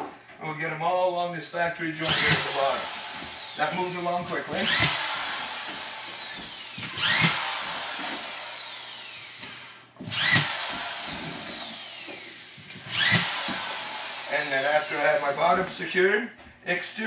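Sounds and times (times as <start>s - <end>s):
drywall screw gun motor whining: 2.0s - 15.6s.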